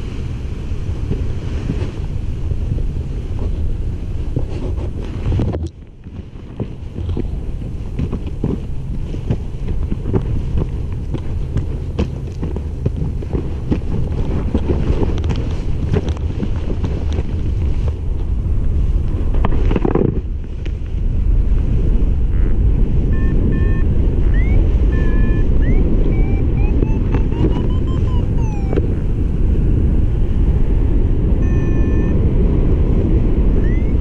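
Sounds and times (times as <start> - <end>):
wind buffeting microphone: 0.0 - 34.0
rustles and clicks: 4.2 - 18.4, 19.0 - 21.0
short high beeps: 23.1 - 28.8, 31.4 - 32.2, 33.6 - 34.0.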